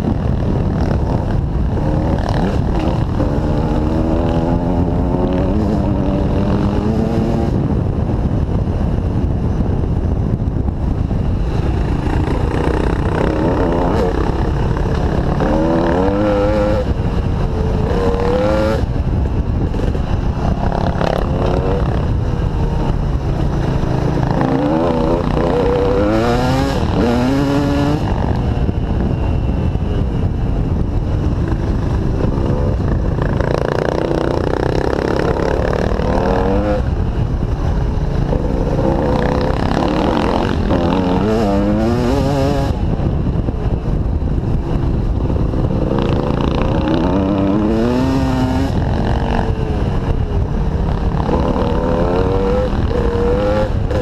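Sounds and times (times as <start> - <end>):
dirt bike engine revving: 0.2 - 7.6, 11.5 - 28.4, 31.2 - 36.9, 38.1 - 42.8, 45.3 - 50.0, 50.9 - 54.0.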